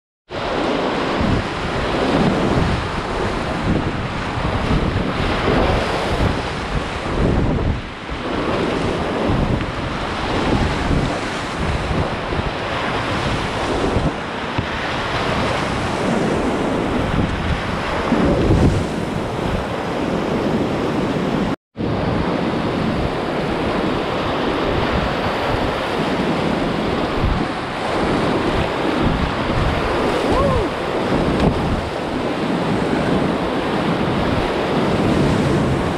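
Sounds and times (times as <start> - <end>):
wind buffeting microphone: 0.3 - 35.9
whitewater rapids rushing: 23.2 - 35.9.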